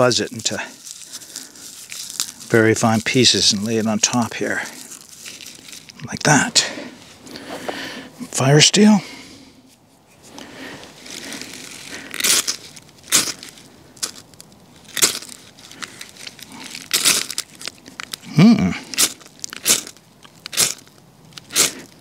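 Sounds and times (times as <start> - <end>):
person grunting: 18.2 - 18.9.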